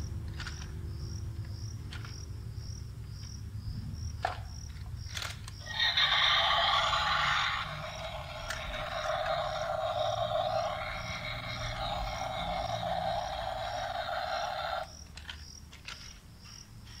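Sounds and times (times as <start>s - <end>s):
toy excavator motor buzzing: 5.1s - 16.2s.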